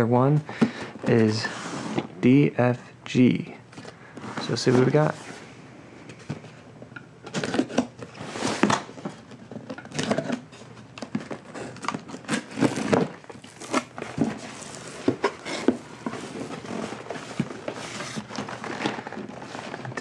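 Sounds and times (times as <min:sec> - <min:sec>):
cardboard box scraping and rustling: 0:11.4 - 0:19.9.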